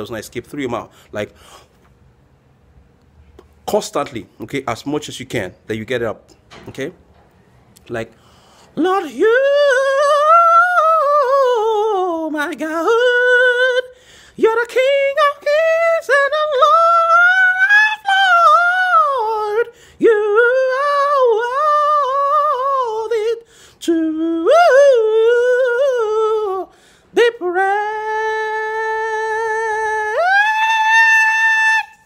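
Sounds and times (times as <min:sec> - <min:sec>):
singer breathing: 0:00.9 - 0:01.9, 0:08.1 - 0:08.8, 0:13.9 - 0:14.4, 0:19.7 - 0:20.0, 0:23.4 - 0:23.8, 0:26.7 - 0:27.2.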